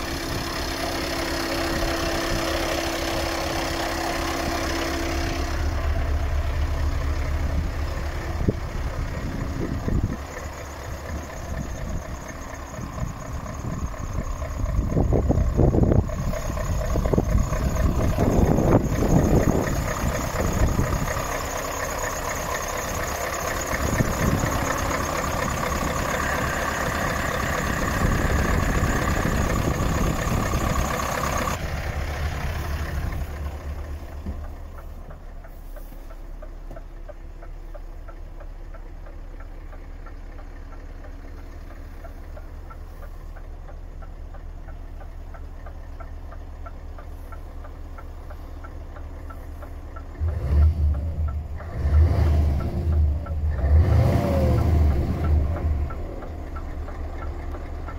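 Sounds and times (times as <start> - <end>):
diesel engine idling: 0.0 - 57.9
faint regular ticking: 32.8 - 57.9.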